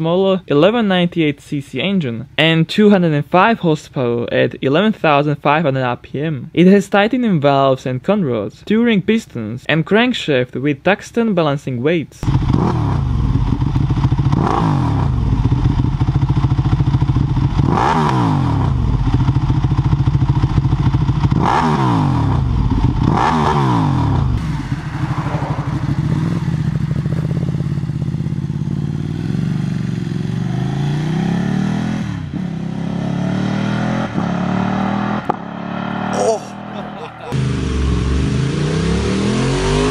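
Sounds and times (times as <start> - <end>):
motorcycle engine revving: 12.2 - 39.9
motorcycle riding and shifting gears: 12.2 - 39.9.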